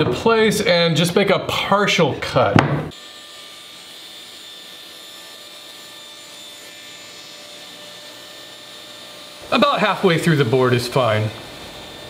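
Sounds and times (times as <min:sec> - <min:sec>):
table saw cutting wood: 0:02.2 - 0:12.0.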